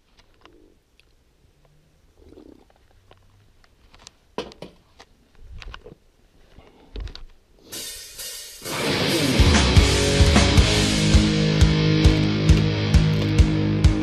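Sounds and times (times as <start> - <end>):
rock music with drums: 7.7 - 14.0
footsteps on concrete floor: 11.0 - 14.0.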